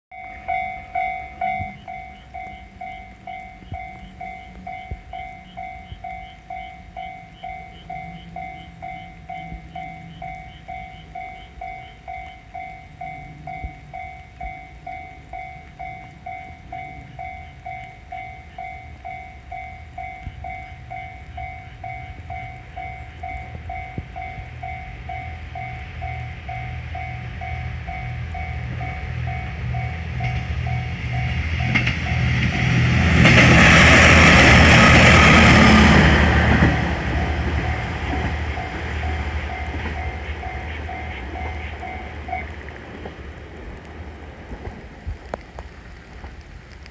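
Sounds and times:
level crossing alarm bell: 0:00.1 - 0:32.8, 0:36.6 - 0:42.5
diesel railcar engine passing: 0:00.1 - 0:46.9.

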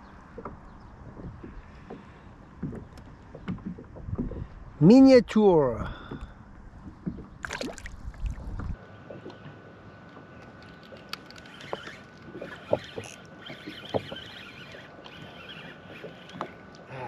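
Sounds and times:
clicks and knocks on kayak: 0:00.3 - 0:04.6
wind buffeting microphone: 0:02.5 - 0:04.8, 0:05.9 - 0:08.8
fishing reel whirring: 0:11.2 - 0:16.6.

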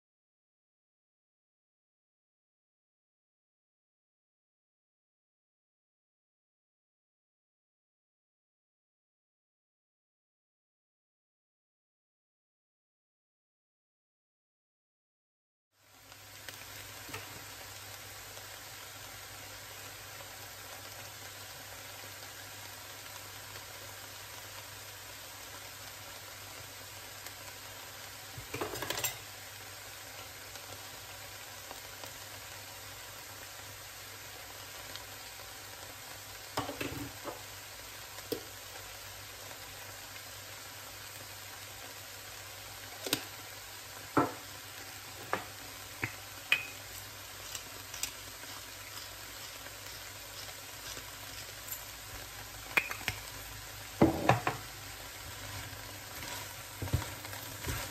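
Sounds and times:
vegetables sizzling in a pan: 0:15.7 - 0:57.9.

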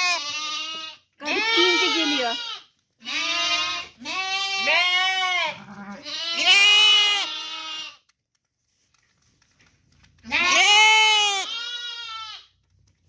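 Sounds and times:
sheep bleating: 0:00.0 - 0:08.0, 0:10.2 - 0:12.5.

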